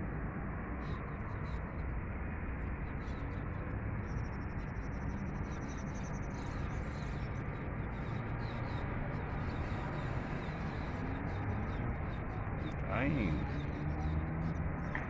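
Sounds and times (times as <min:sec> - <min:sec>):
small birds chirping: 0:02.8 - 0:15.0.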